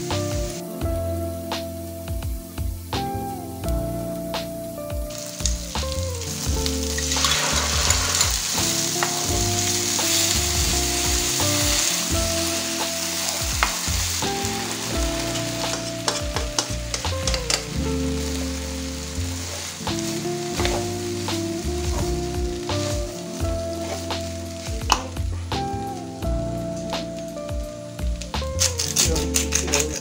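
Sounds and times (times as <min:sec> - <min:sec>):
meatballs sizzling in a frying pan: 0:00.0 - 0:29.6
wooden spatula scraping: 0:06.2 - 0:25.2.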